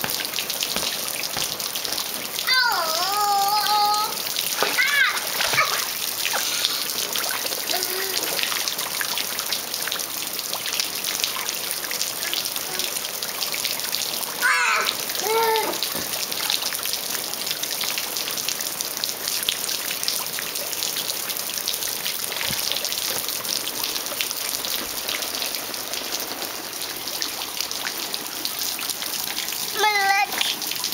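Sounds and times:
light splashing: 0.0 - 9.9
water spraying and pattering: 0.0 - 30.9
young child vocal sound: 2.4 - 6.8, 7.6 - 8.4, 12.2 - 13.0, 14.4 - 15.9, 29.8 - 30.5.

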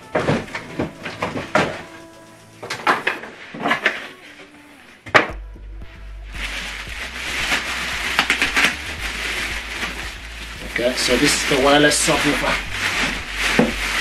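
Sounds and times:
plastic bag crinkling: 6.4 - 14.0.

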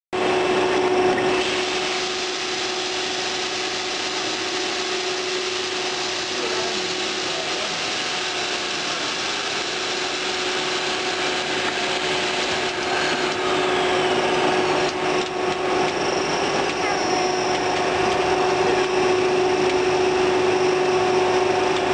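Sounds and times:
machinery noise with hum: 0.2 - 21.9.

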